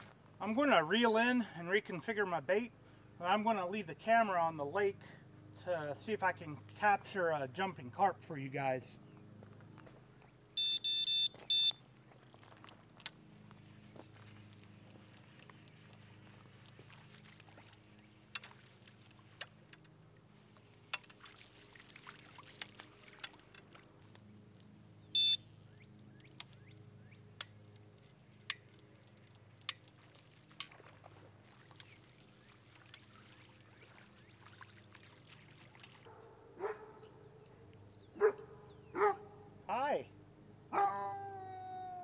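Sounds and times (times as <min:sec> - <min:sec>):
faint lapping water: 0:13.6 - 0:24.7, 0:28.9 - 0:36.8
dog whining: 0:40.8 - 0:42.0.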